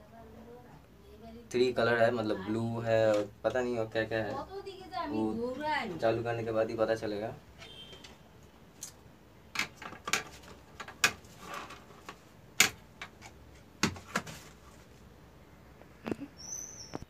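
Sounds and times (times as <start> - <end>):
plastic clicks and knocks: 9.5 - 14.3.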